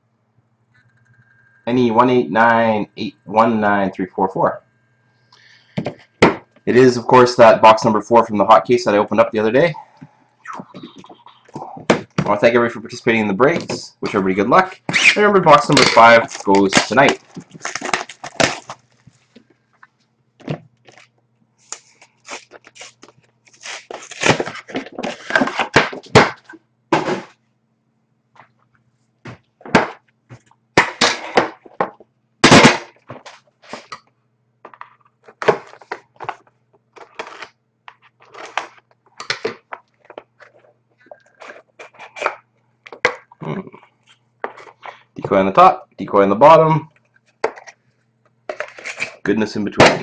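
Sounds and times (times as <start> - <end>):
faint steady hum: 0.0 - 50.0
plastic wrap crackling and tearing: 14.8 - 19.4, 20.8 - 26.5.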